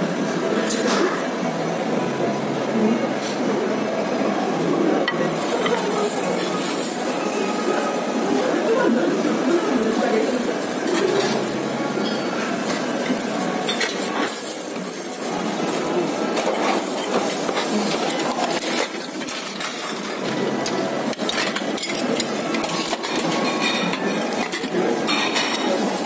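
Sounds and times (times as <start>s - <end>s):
background hubbub: 0.0s - 26.0s
dishes and cutlery clinking: 5.0s - 7.4s, 10.4s - 15.7s, 16.3s - 26.0s.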